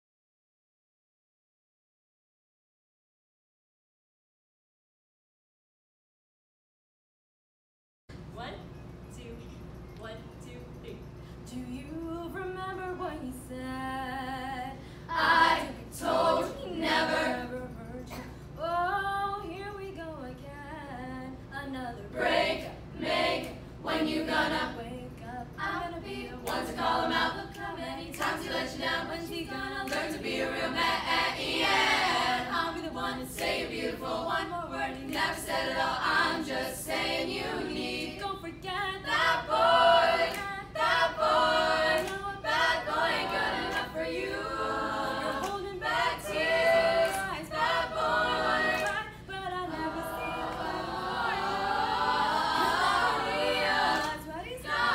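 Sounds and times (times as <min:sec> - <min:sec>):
women singing in harmony: 0:11.4 - 0:54.9
vocal percussion clicking: 0:17.4 - 0:18.6, 0:24.7 - 0:30.9, 0:48.6 - 0:50.8.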